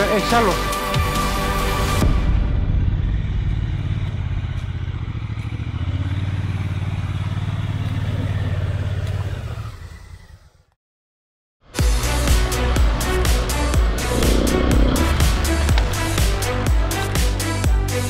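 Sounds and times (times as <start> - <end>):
motorcycle engine revving: 3.3 - 9.6, 13.9 - 16.5.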